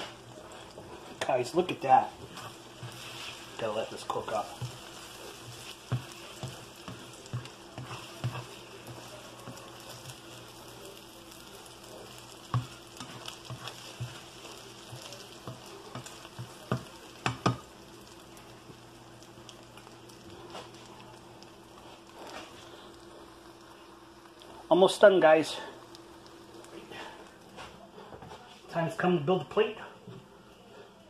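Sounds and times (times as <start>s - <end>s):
eggs sizzling in frying pan: 0.0s - 29.5s
spatula knocking and scraping pan: 0.8s - 10.2s, 12.4s - 17.7s.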